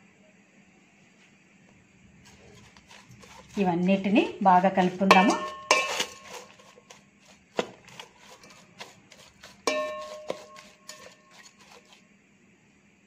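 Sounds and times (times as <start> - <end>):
spoon scraping in pot: 2.2 - 12.0
spoon knocking metal pot: 4.8 - 6.5, 9.5 - 11.6.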